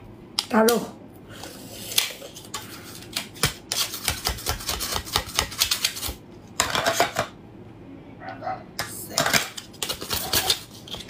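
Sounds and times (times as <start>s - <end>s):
mussel shell clicking and scraping: 9.2s - 11.0s.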